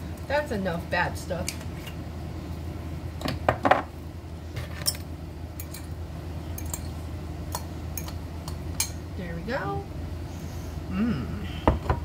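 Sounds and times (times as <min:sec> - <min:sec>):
steady low hum: 0:00.0 - 0:12.0
utensils clinking against dishes: 0:04.7 - 0:09.0.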